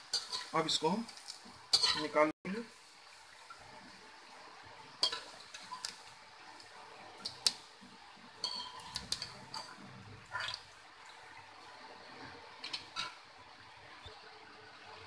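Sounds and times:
metal skimmer clinking against pan: 8.4s - 9.7s.

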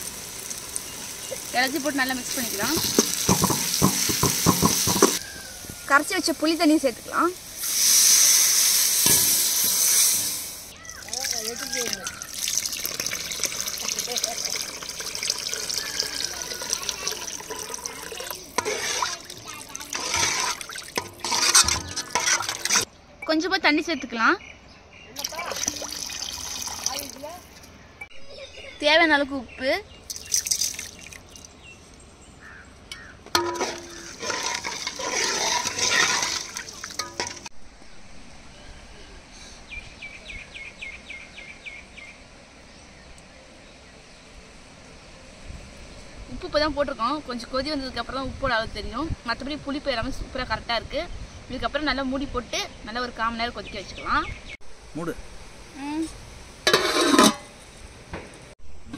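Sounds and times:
spoon knocking against pot: 2.8s - 5.2s
liquid pouring into a pot: 11.0s - 22.9s, 25.2s - 27.1s, 30.1s - 31.4s, 33.6s - 37.5s
spoon stirring gravy: 14.7s - 22.9s, 33.4s - 37.5s.

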